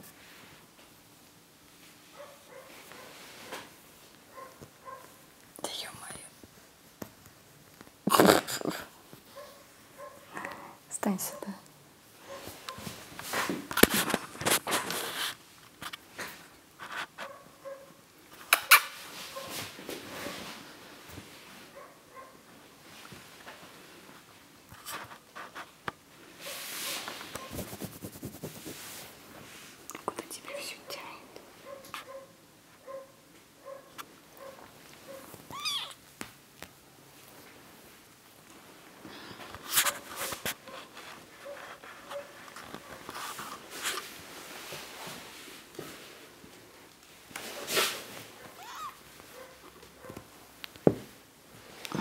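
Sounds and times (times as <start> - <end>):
kittens rustling on fabric: 0.0 - 8.4, 12.2 - 17.4, 18.9 - 21.9, 22.6 - 32.2, 33.9 - 52.0
claws scratching on fabric: 26.9 - 29.1.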